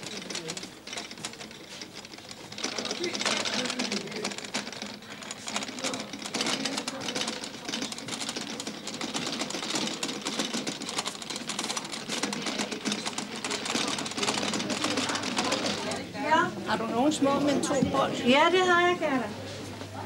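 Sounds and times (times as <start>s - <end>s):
trolley of crockery rattling: 0.0s - 16.0s.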